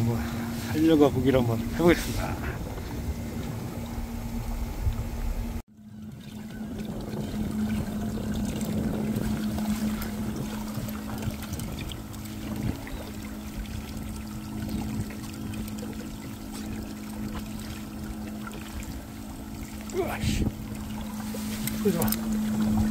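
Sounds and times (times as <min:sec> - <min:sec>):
steady motor hum: 0:00.0 - 0:22.9
water pouring and trickling: 0:05.6 - 0:22.9.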